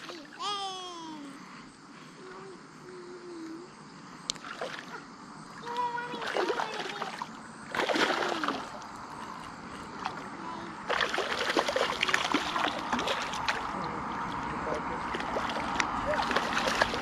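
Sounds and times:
fish splashing at water surface: 5.6 - 17.0.

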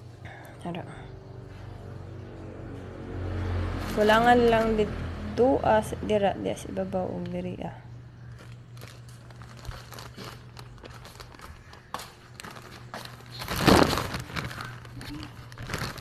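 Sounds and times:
plastic bag crinkling: 3.8 - 4.8, 8.2 - 16.0.

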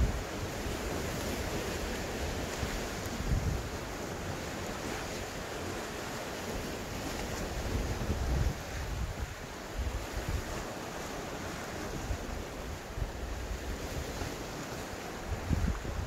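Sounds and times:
wind buffeting microphone: 0.0 - 0.4, 2.4 - 3.8, 7.4 - 10.6, 15.2 - 16.0
sea waves breaking on rocks: 0.0 - 16.0.

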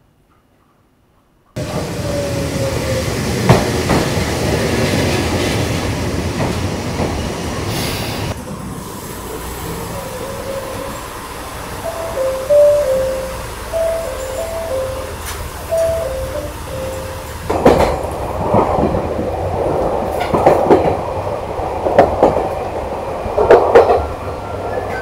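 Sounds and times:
train rumbling on rails: 1.6 - 25.0
wheel squeal: 9.8 - 11.3.

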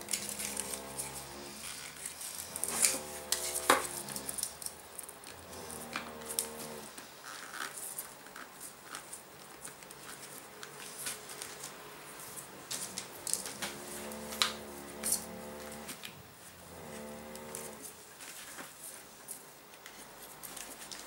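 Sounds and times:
metal foil crinkling: 0.0 - 5.9.

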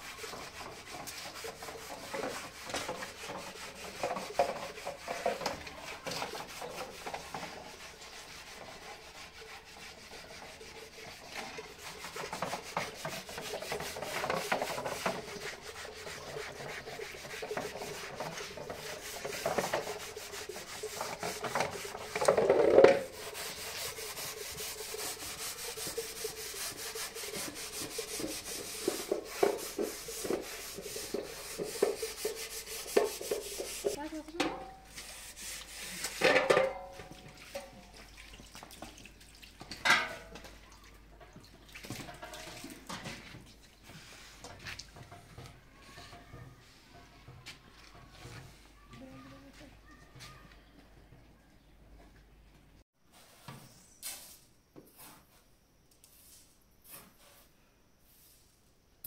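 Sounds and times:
rubbing and scraping strokes: 0.0 - 34.2, 34.8 - 36.6, 43.8 - 44.9.

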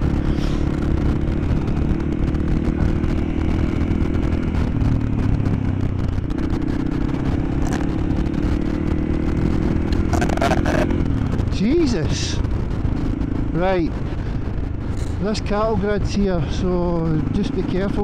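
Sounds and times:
motorcycle engine running: 0.0 - 18.0
person burping: 10.0 - 11.0.

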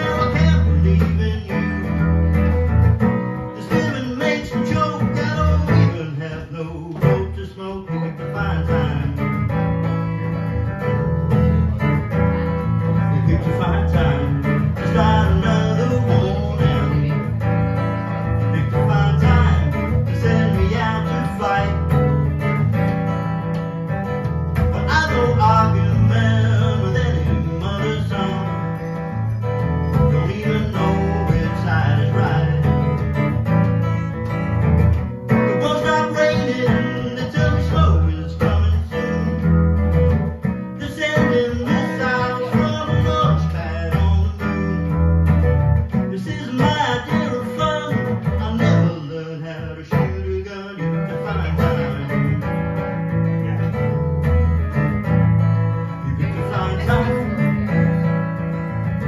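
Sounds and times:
amplified acoustic guitar: 0.0 - 59.0.

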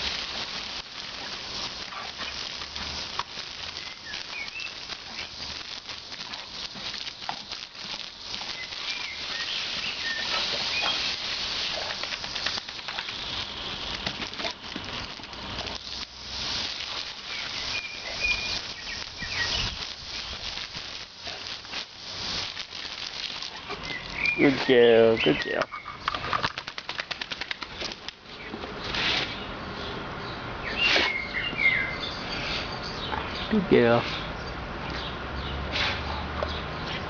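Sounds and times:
water splashing: 0.0 - 24.8
hose water spraying: 0.0 - 28.2, 30.7 - 32.8, 35.6 - 37.0.

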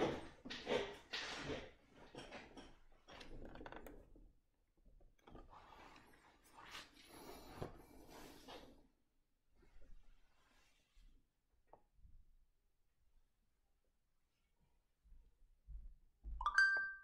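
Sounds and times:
faint rustling and rubbing: 5.3 - 9.0, 9.6 - 11.3.

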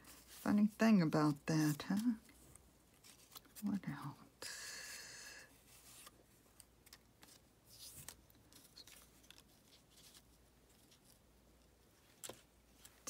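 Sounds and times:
paper rustling: 0.0 - 3.6, 5.7 - 11.2.

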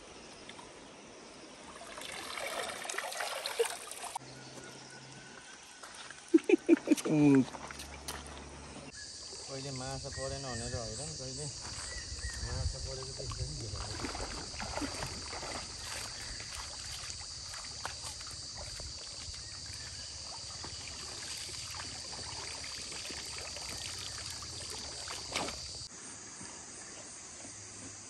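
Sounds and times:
water splashing and dripping: 1.6 - 4.2, 11.2 - 25.9
high insect drone: 6.3 - 28.0.

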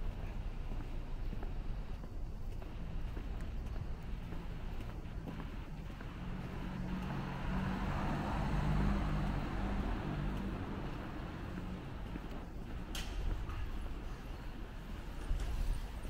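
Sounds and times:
vehicle passing by: 4.5 - 14.7.

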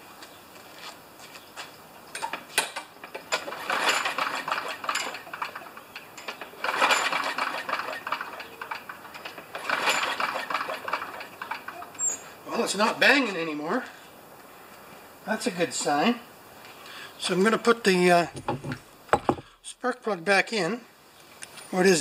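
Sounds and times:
lawn mower engine turning over: 2.1 - 12.3.

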